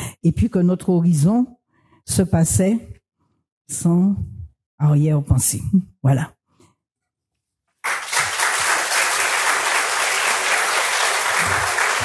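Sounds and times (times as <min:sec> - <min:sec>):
audience applauding: 0:07.8 - 0:12.0.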